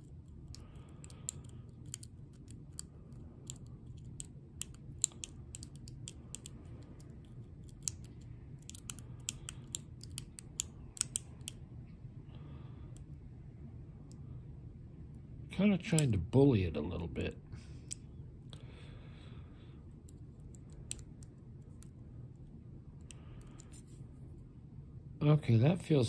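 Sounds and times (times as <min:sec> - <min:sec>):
low steady hum: 0:00.0 - 0:26.0
lock pick clicking in padlock: 0:00.5 - 0:06.5, 0:07.6 - 0:11.6.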